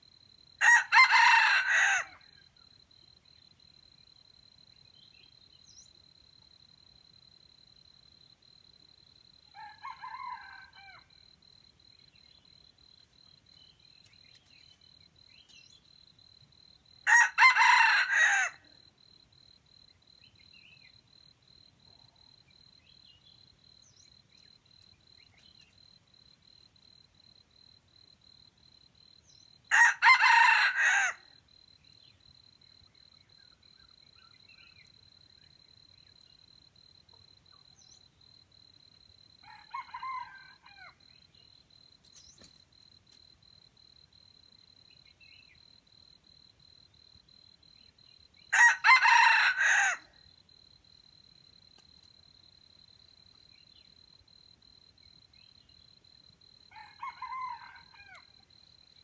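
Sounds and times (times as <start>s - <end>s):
distant rooster crowing: 0.6s - 2.2s, 9.5s - 11.2s, 17.0s - 18.6s, 29.7s - 31.3s, 39.4s - 41.0s, 48.5s - 50.1s, 56.7s - 58.4s
rooster crowing: 0.6s - 2.4s, 9.5s - 11.1s, 17.0s - 18.6s, 29.7s - 31.3s, 39.4s - 41.0s, 48.5s - 50.1s, 56.7s - 58.4s.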